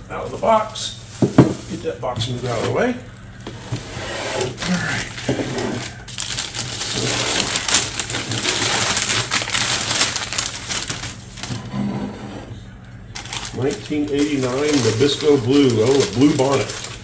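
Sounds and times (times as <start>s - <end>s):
newspaper crumpling and rustling: 4.6s - 11.5s, 13.1s - 17.0s.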